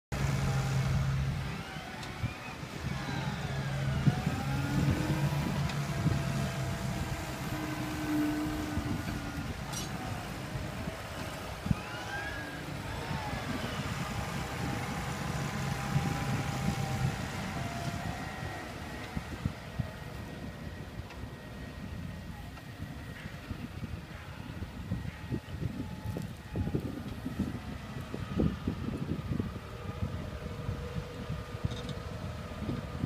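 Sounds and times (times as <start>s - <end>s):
tractor diesel engine under load: 0.0s - 33.0s.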